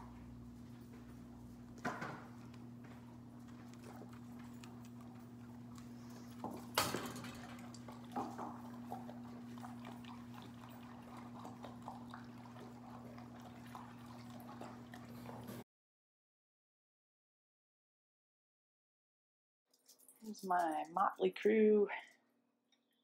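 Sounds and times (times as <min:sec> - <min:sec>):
dog eating from bowl: 0:01.7 - 0:15.6.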